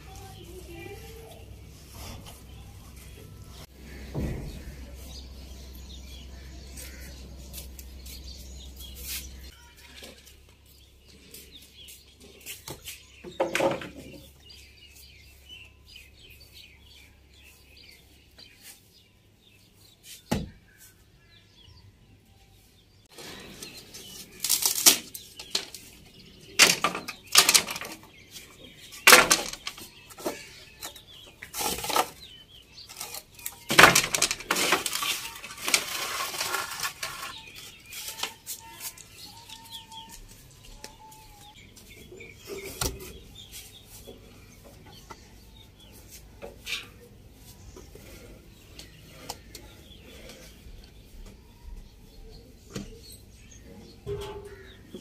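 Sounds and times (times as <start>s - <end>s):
wooden planks knocking on concrete: 12.7s - 14.3s, 26.6s - 28.1s, 28.9s - 31.0s, 33.0s - 39.0s.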